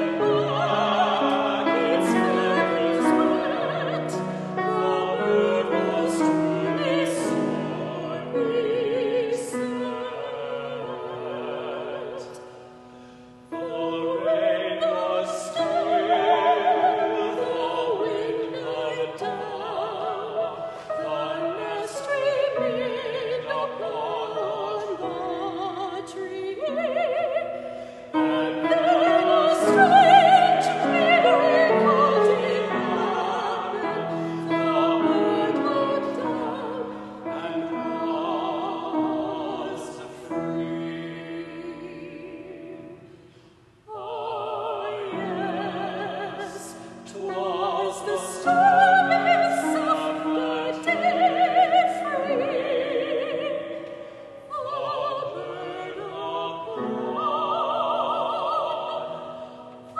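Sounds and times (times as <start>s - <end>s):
soprano singing with vibrato: 0.0s - 12.5s, 13.4s - 43.2s, 43.9s - 59.9s.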